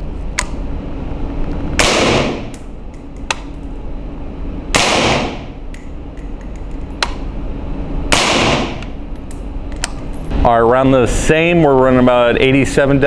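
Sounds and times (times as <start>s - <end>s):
suppressed rifle shots echoing: 8.1s - 8.8s.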